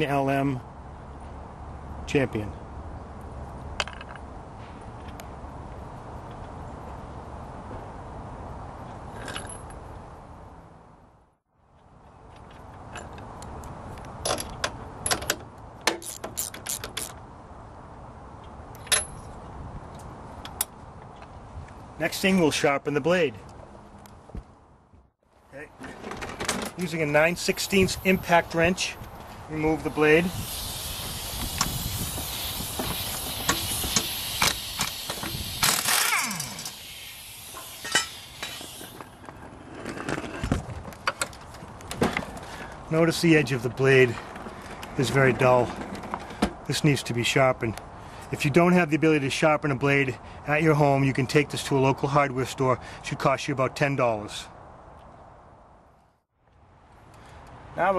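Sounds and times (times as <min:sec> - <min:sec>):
ratchet wrench clicking: 0:15.9 - 0:17.2, 0:30.2 - 0:39.0.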